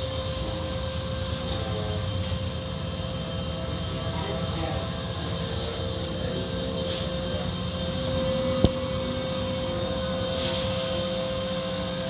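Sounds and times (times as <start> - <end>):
car wash machinery running: 0.0 - 12.0.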